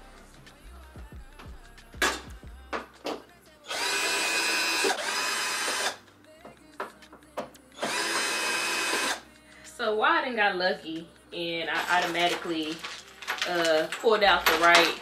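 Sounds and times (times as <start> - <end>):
knocks and clicks of handling hardware: 2.0 - 3.2, 6.4 - 7.6
cordless power drill driving bolt: 3.7 - 6.0, 7.8 - 9.2.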